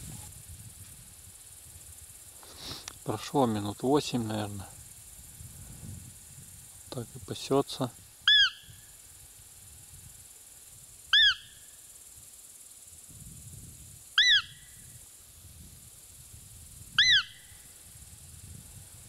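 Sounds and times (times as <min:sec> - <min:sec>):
deer call squeaky peeps: 0:08.3 - 0:08.7, 0:11.1 - 0:11.5, 0:14.2 - 0:14.6, 0:17.0 - 0:17.4.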